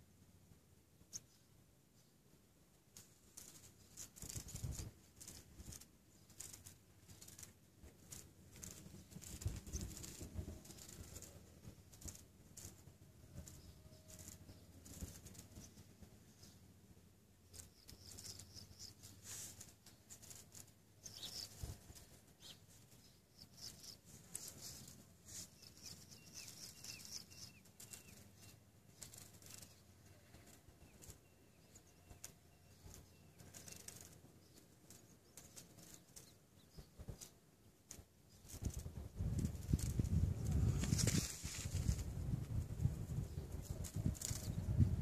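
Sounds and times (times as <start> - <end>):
faint rustling: 2.7 - 45.0
soft crackles: 2.7 - 45.0
thin high chirp: 17.5 - 37.3.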